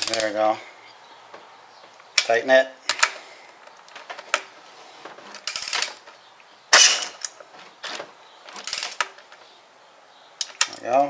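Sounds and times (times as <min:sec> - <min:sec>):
air ratchet hiss and clatter: 0:08.6 - 0:09.1.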